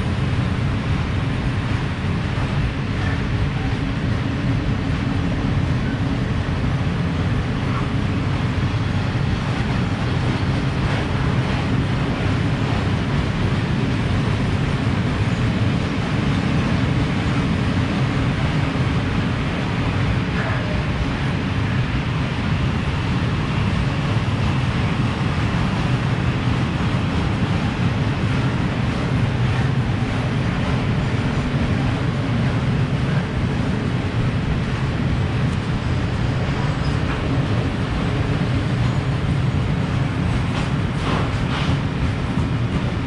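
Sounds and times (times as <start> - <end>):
train wheels rumbling on track: 0.0 - 43.0.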